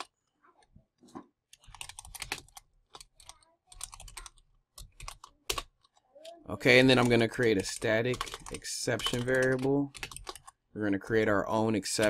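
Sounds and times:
typing on keyboard: 0:01.6 - 0:10.6.

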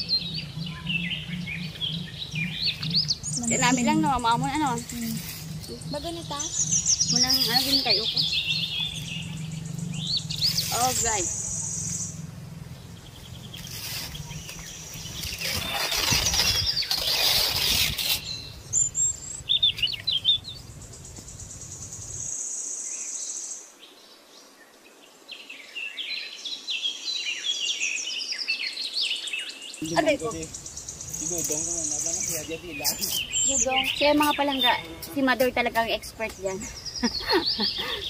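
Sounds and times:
palm fronds rustling: 0:00.0 - 0:19.0, 0:29.8 - 0:38.0
birds chirping: 0:00.0 - 0:24.8, 0:25.4 - 0:38.0.

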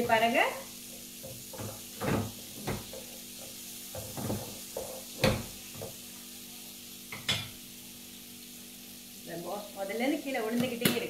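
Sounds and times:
food sizzling in a frying pan: 0:00.0 - 0:11.0
wooden spatula scraping a pan: 0:01.0 - 0:06.0.

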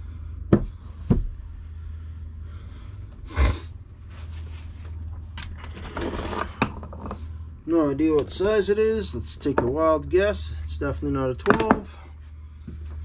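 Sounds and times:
steady low hum: 0:00.0 - 0:13.0
tools scraping and rattling: 0:05.4 - 0:07.4.

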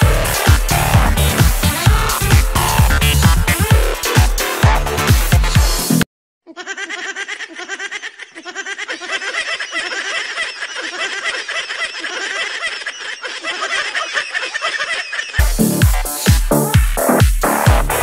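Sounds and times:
high-pitched snickering and giggling: 0:06.5 - 0:15.4.

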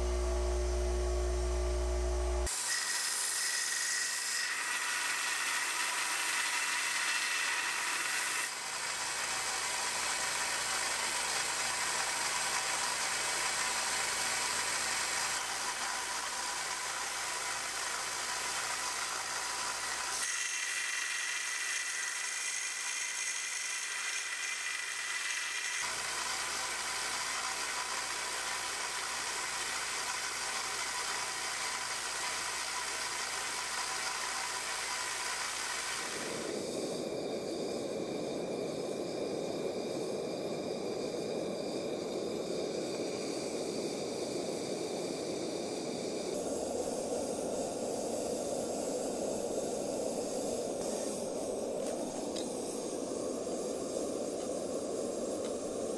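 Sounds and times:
belt grinder motor hum: 0:00.0 - 0:36.5.

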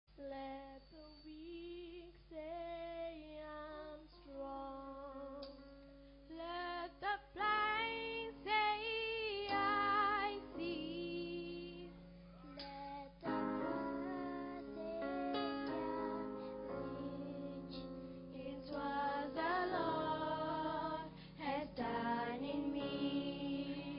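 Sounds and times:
instrumental backing music: 0:04.1 - 0:23.9
girls singing into microphones: 0:06.3 - 0:11.9, 0:12.5 - 0:23.9.

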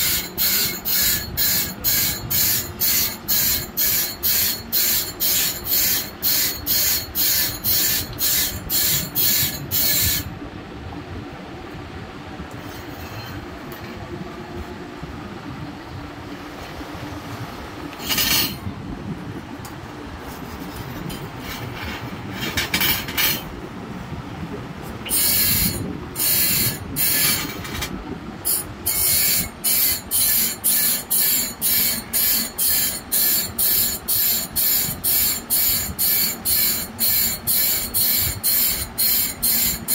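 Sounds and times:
file rasping on saw blade: 0:00.0 - 0:10.3, 0:25.1 - 0:27.9, 0:28.5 - 0:39.9.

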